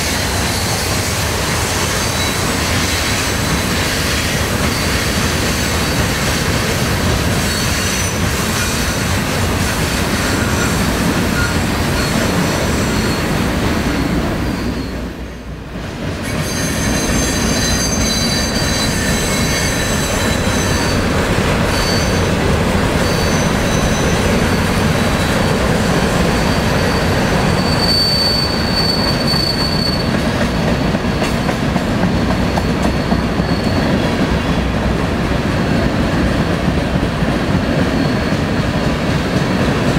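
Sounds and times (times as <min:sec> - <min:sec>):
freight train rumbling past: 0:00.0 - 0:39.9
high thin wheel squeal: 0:07.4 - 0:09.0, 0:10.2 - 0:13.4, 0:14.0 - 0:15.2, 0:16.3 - 0:22.4, 0:23.0 - 0:31.6, 0:32.5 - 0:34.0.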